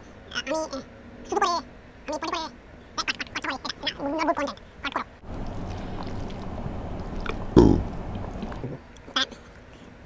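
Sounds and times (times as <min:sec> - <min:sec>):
gurgling eating noise: 0:05.3 - 0:08.9
man speaking: 0:07.6 - 0:07.9.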